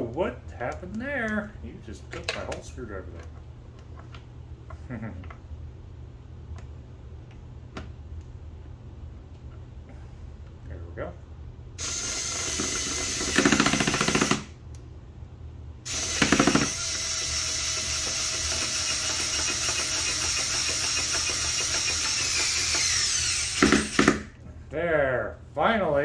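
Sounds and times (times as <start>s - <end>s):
power drill driving screw: 11.8s - 14.5s, 15.9s - 24.3s.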